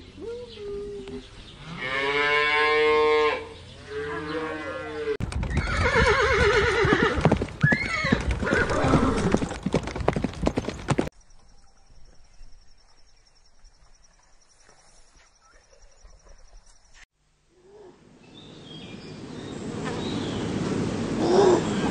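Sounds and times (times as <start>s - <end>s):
horse neighing: 4.1s - 9.5s
hoof clip-clops: 5.2s - 11.1s.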